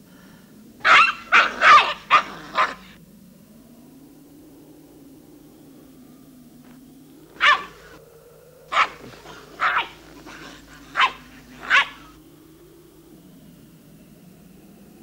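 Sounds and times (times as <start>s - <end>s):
puppy barking: 0.8s - 3.0s, 7.4s - 8.0s, 8.7s - 12.2s.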